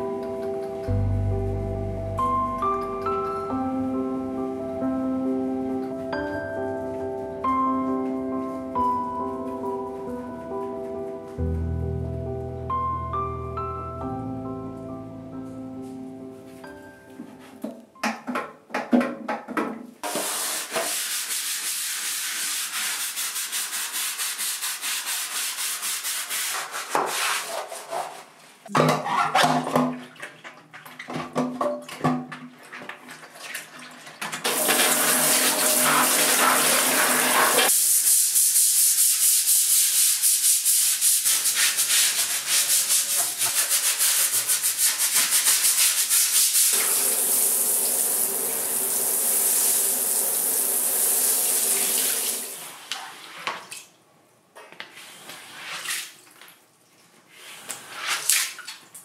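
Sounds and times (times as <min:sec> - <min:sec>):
shower spray hissing on tiles: 0:20.0 - 0:27.3, 0:34.5 - 0:52.8
brush scrubbing: 0:20.0 - 0:28.4, 0:34.5 - 0:46.9.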